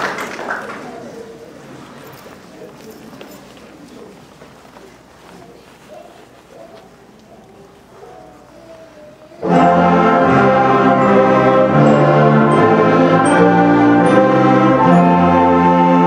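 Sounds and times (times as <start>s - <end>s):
concert band playing chorale: 9.4s - 16.0s.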